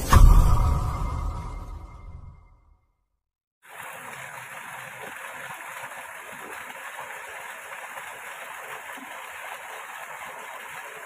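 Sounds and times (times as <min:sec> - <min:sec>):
water running in a ditch: 0:03.6 - 0:11.0.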